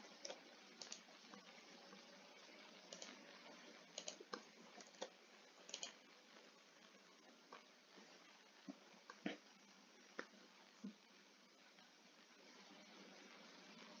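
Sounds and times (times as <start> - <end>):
low steady hiss: 0.0 - 14.0
mouse and keyboard clicks: 0.2 - 1.0, 2.9 - 3.2, 4.0 - 5.1, 5.7 - 6.0.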